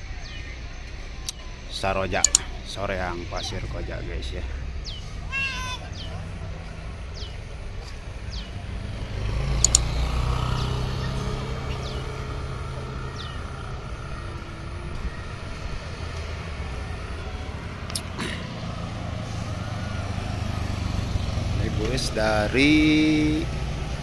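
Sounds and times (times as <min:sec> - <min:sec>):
traffic engine rumble: 0:00.0 - 0:24.0
motorcycle engine approaching: 0:03.4 - 0:24.0.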